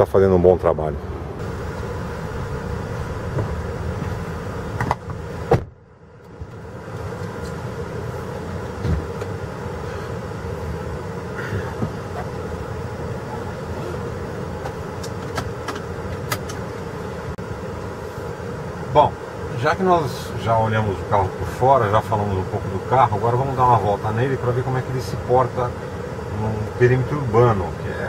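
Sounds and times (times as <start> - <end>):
car humming: 0.0 - 28.0.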